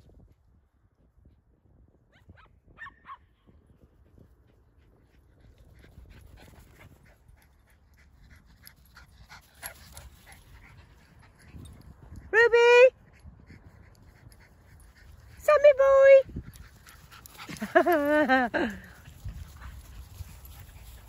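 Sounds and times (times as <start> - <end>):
small dogs yipping: 2.1 - 3.5
dogs panting: 5.0 - 21.0
dogs running on grass: 16.2 - 21.0.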